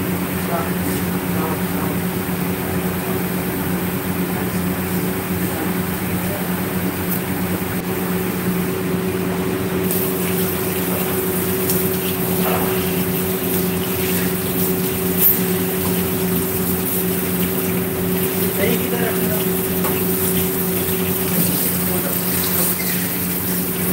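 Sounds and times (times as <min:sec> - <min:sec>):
low electrical hum: 0:00.0 - 0:23.9.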